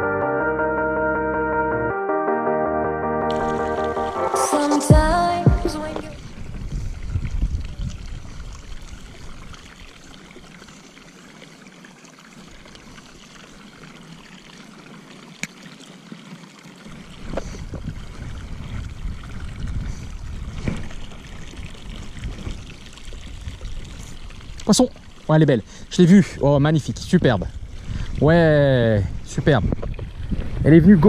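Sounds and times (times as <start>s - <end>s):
water splashing into pond: 3.3s - 4.8s, 5.8s - 25.9s.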